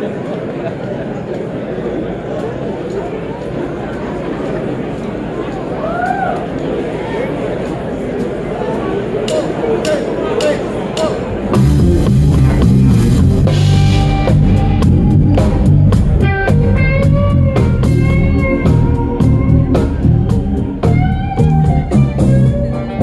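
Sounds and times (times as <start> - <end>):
drum kit: 9.3 - 23.0
electric guitar notes: 11.0 - 23.0
electric bass: 11.5 - 23.0.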